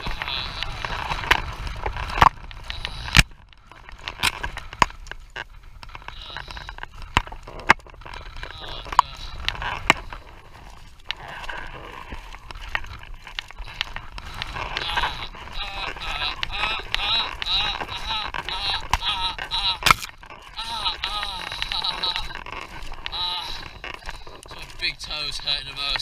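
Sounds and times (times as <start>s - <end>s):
steady low rumble: 0.0s - 26.0s
tripod clicks and knocks: 19.8s - 20.3s.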